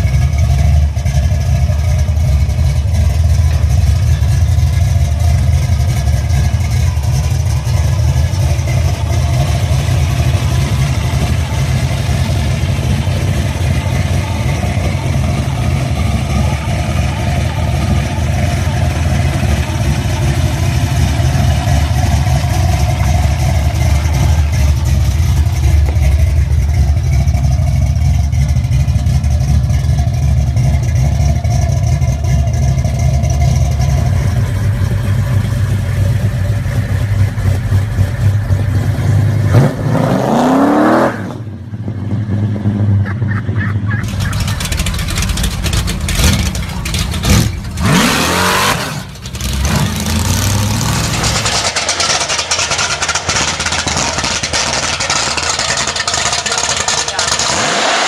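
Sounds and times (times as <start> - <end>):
car engines running rough: 0.0 - 58.0
engine revving with rising pitch: 39.0 - 41.4, 44.0 - 52.2, 57.3 - 58.0.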